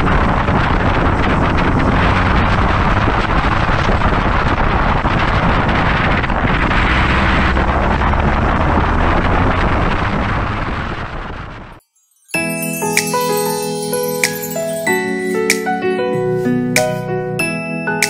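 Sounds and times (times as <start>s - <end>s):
kart engine running at speed: 0.0s - 11.8s
wind rushing over microphone: 0.0s - 11.8s.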